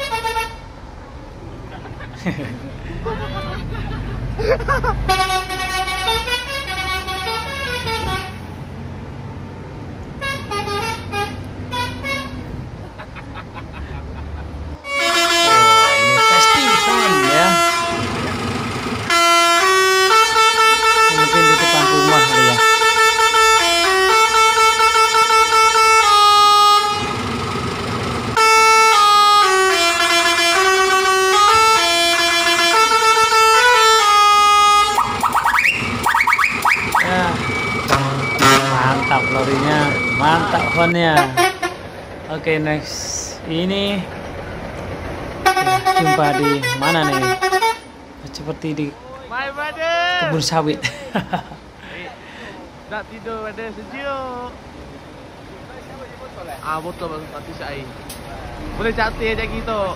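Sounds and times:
low engine hum: 0.0s - 24.4s, 25.7s - 48.9s, 57.0s - 59.9s
musical air horn tune: 5.1s - 8.4s, 14.8s - 18.2s, 19.1s - 27.2s, 28.4s - 35.1s, 37.9s - 40.0s
short horn notes: 14.8s - 18.2s, 19.1s - 27.2s, 37.9s - 39.7s
wavering rising and falling tones: 58.3s - 59.9s.

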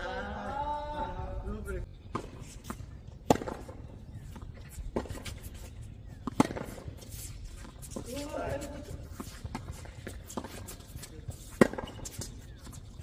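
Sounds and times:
tennis ball bouncing on court: 2.1s - 12.9s
tennis racket hitting ball: 2.2s - 3.8s, 6.1s - 12.4s.

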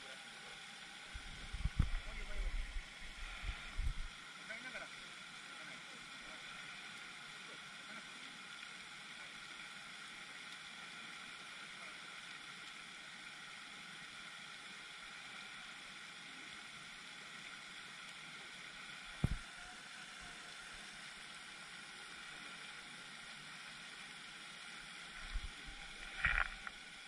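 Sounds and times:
fountain spray hissing on water: 0.0s - 27.0s.

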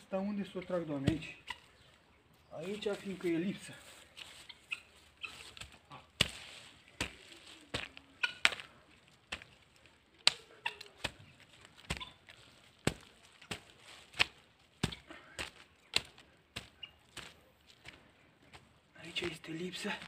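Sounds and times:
garden hoe chopping into soil: 5.2s - 8.7s, 10.2s - 18.0s.

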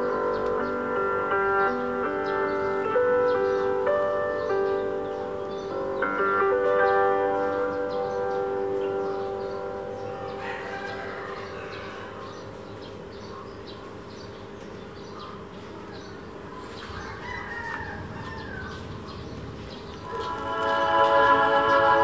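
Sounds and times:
rooster crowing: 10.1s - 12.4s, 16.8s - 19.2s.

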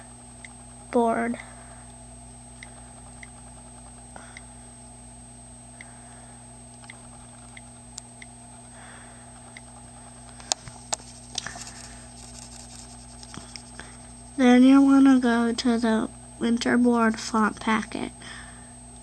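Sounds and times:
faint hum: 0.0s - 19.0s
on-screen keyboard ticks: 6.8s - 8.3s.

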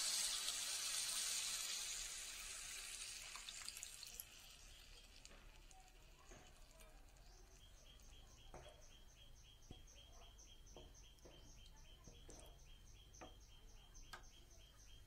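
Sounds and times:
liquid sizzling in a hot pan: 0.0s - 8.8s.

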